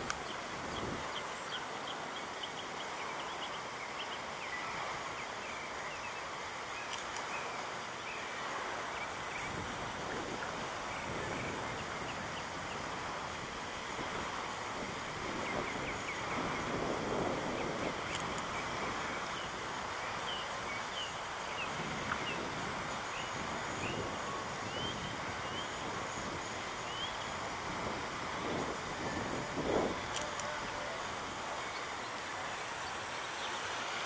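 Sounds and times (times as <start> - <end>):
wind on microphone: 0.0 - 1.6, 8.4 - 34.0.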